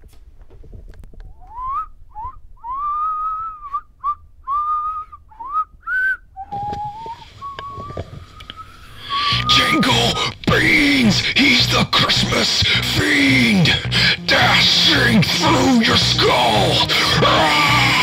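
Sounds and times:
person whistling a tune: 1.4s - 9.9s.

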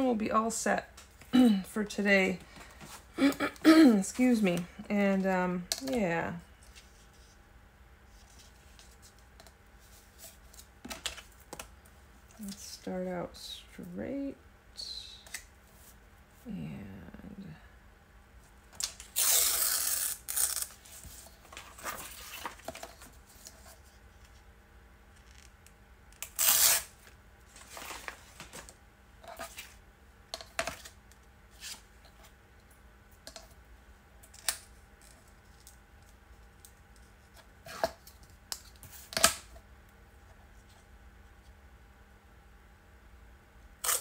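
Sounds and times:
paper rustling and scraping: 19.7s - 24.4s, 27.5s - 28.7s, 29.3s - 29.8s.

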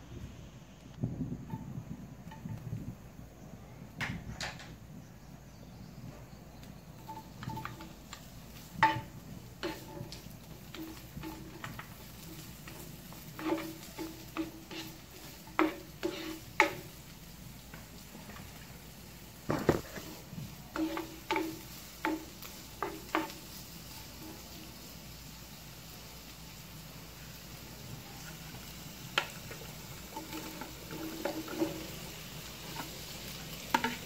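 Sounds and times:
faint sizzle: 0.0s - 34.0s
spatula scraping frying pan: 7.0s - 18.6s, 19.4s - 24.8s, 28.2s - 34.0s.

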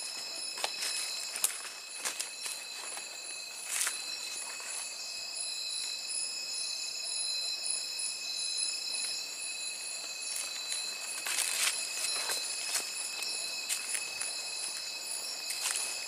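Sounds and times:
night insects chorus: 0.0s - 16.0s
footsteps: 0.1s - 4.9s, 10.0s - 16.0s.

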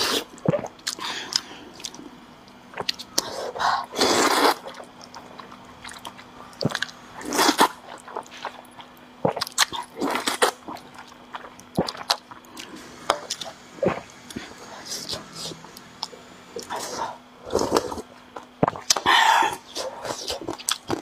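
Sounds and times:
wet chewing: 0.2s - 16.9s, 17.5s - 21.0s
person slurping noodles: 3.2s - 4.8s, 6.7s - 8.5s, 16.6s - 20.5s.

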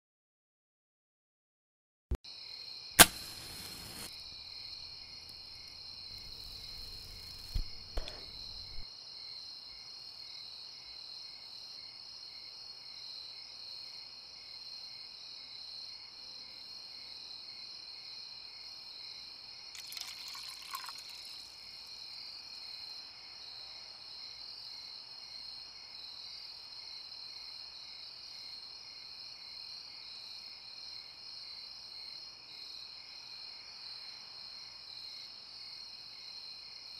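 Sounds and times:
crickets chirping: 3.0s - 8.8s, 19.8s - 24.7s.

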